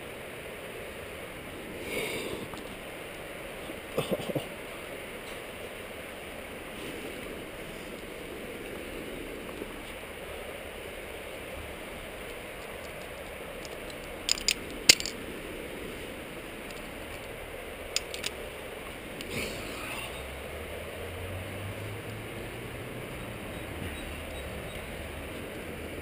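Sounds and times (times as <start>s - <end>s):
steady hiss: 0.0s - 26.0s
climbing gear clinking: 12.6s - 15.2s, 17.9s - 18.4s.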